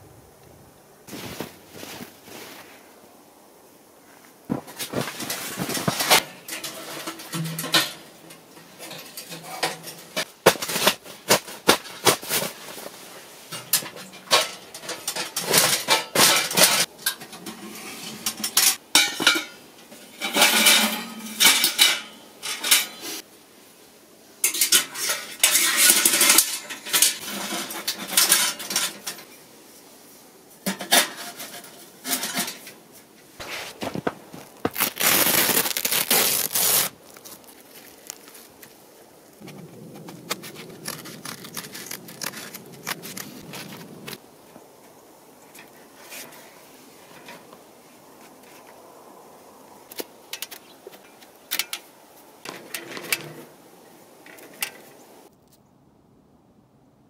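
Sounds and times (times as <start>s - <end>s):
tent canvas rustling: 1.1s - 3.2s, 4.5s - 7.2s, 9.5s - 13.5s, 33.4s - 44.2s
metal clinking and clattering: 4.5s - 11.1s, 13.5s - 23.0s, 24.4s - 29.3s
metal scraping: 4.5s - 23.2s, 24.4s - 29.4s, 30.6s - 32.8s, 33.4s - 38.5s.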